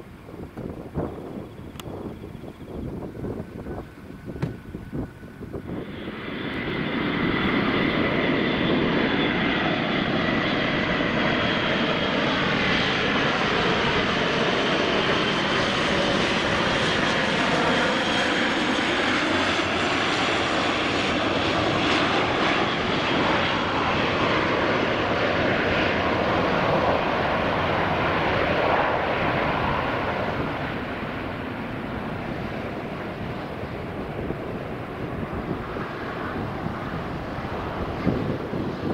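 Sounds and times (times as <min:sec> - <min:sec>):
turboprop aircraft passing: 0:00.0 - 0:38.9.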